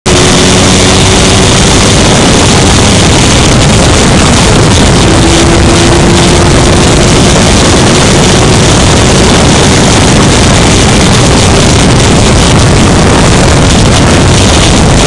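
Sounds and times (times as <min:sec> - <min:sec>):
race car engine running hard: 0:00.0 - 0:15.0
wind buffeting microphone: 0:00.1 - 0:15.0.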